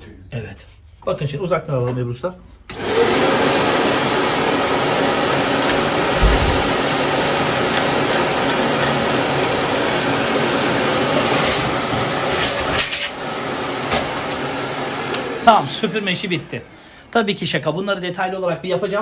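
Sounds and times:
vacuum cleaner running: 2.7s - 18.4s
brief low bump: 6.1s - 6.9s.

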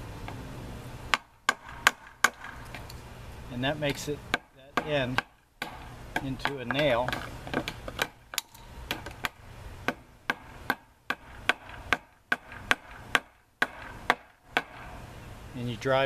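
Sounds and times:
hammer tapping metal wire: 3.8s - 15.0s.

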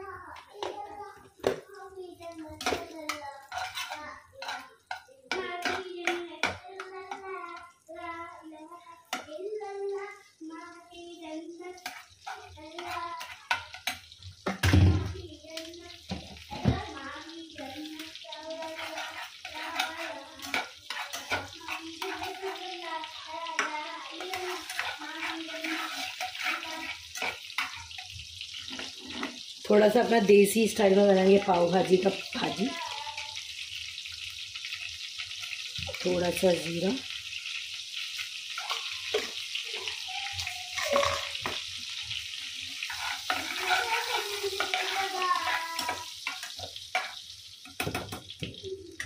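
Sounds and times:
butter and oil sizzling: 0.0s - 49.0s
spatula scraping pan: 0.3s - 7.8s, 11.5s - 33.4s, 34.0s - 48.3s
spatula knocking against pan: 2.6s - 7.2s
spatula clicking on pan: 2.6s - 7.8s, 9.1s - 9.3s, 11.8s - 14.7s, 17.8s - 28.2s, 42.8s - 48.4s.

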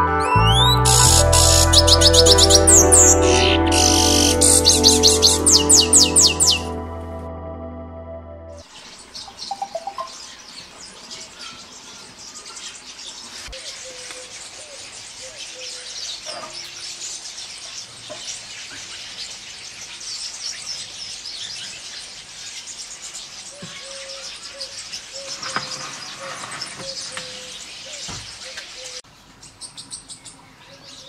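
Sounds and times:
low repeated bird notes: 0.0s - 10.2s.

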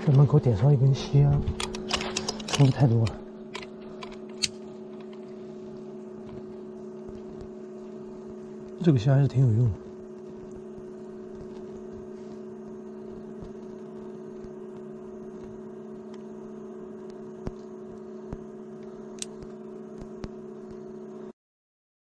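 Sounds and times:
two-tone electrical hum: 0.0s - 21.4s.

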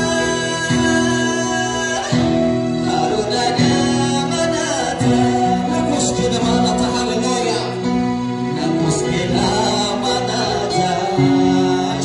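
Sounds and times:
instrumental backing with plucked strings: 0.0s - 12.0s
man singing into a microphone: 0.0s - 12.0s.

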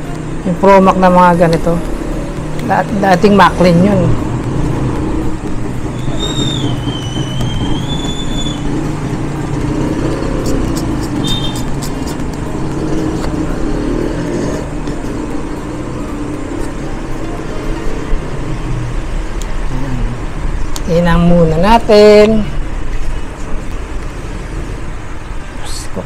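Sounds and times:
low mechanical rumble: 0.0s - 22.7s
short high whistle: 5.9s - 8.6s, 11.2s - 11.7s.

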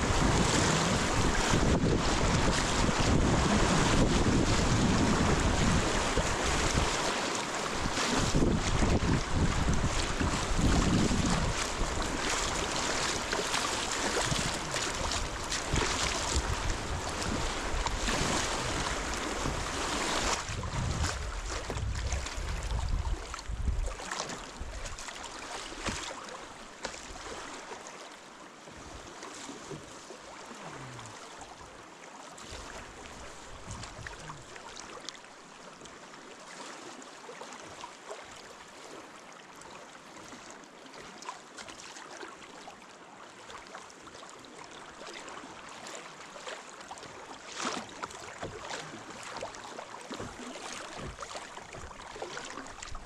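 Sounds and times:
river water rushing: 0.0s - 21.6s, 44.5s - 53.0s.

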